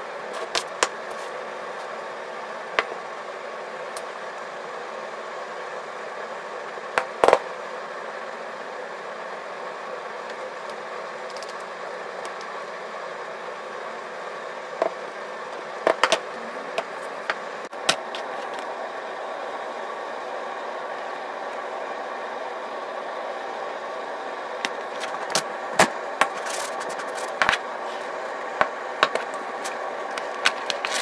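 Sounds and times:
machine hum: 0.0 - 31.0.

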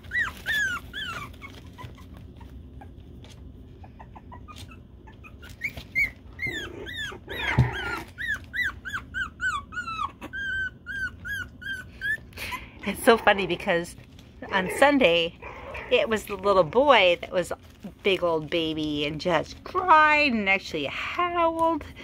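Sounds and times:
puppy whimpering and crying: 0.0 - 17.3.

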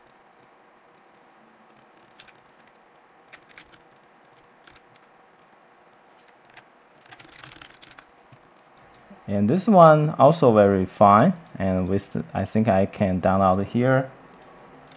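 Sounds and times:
keyboard and mouse clicks: 0.0 - 9.1, 14.3 - 14.9
low steady hiss: 0.0 - 14.9.

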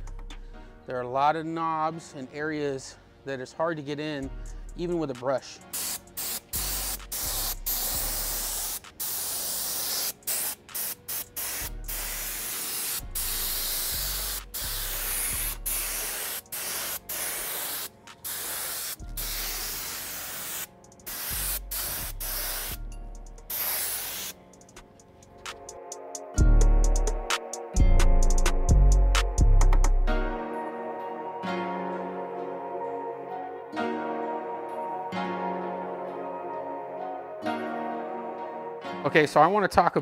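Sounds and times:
spray gun hissing air and mist: 5.7 - 22.8, 23.4 - 24.4.

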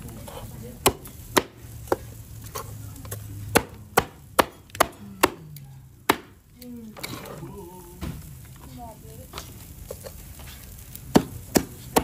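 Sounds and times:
cleaver chopping on wooden board: 11.1 - 12.0.

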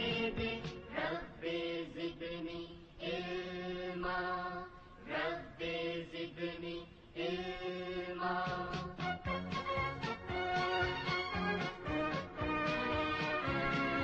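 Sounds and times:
chant-like singing: 0.0 - 9.0.

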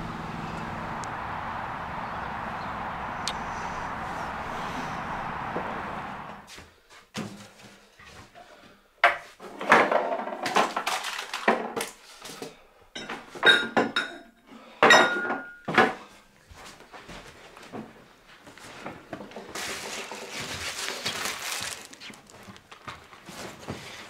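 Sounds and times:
crockery knocking and clinking: 14.8 - 15.9.

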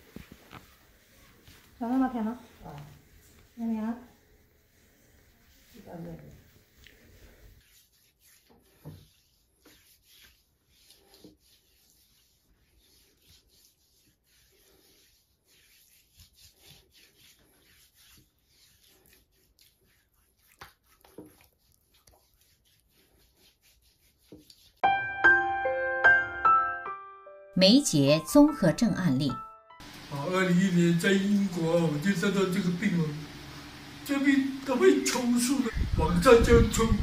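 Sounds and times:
hand rubbing paste on skin: 0.0 - 24.8.

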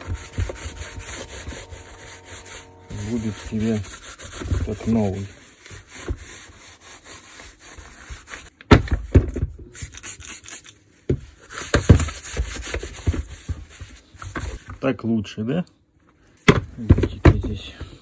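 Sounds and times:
rag wiping plastic housing: 0.0 - 8.5.

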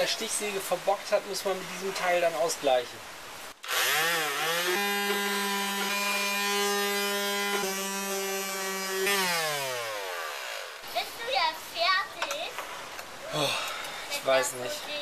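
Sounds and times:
electric sander running: 3.6 - 10.8.

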